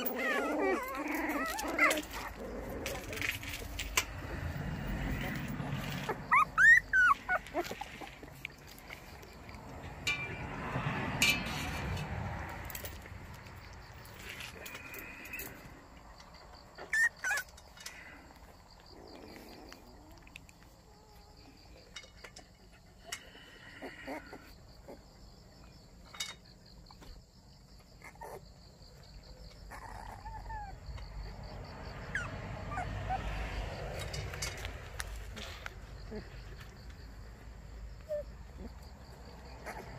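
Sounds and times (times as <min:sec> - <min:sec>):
puppies whimpering and squeaking: 0:00.0 - 0:09.6, 0:16.7 - 0:21.8, 0:22.6 - 0:25.1, 0:27.8 - 0:36.6, 0:38.0 - 0:39.9.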